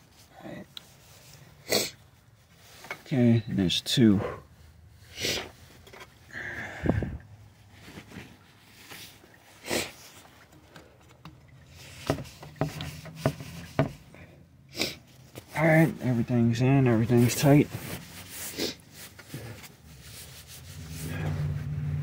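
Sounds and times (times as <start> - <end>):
person sniffing: 1.6 - 2.0, 5.1 - 5.6, 9.6 - 10.0, 14.7 - 15.1, 18.4 - 19.7
handling noises: 6.9 - 14.3.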